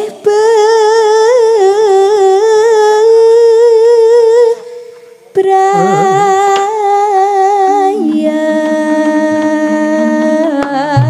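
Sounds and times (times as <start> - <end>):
woman singing held notes: 5.4 - 6.7.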